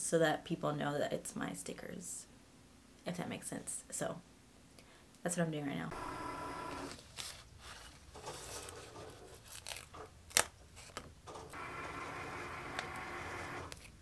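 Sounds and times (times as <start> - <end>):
paper stickers crinkling and peeling: 6.7 - 11.1.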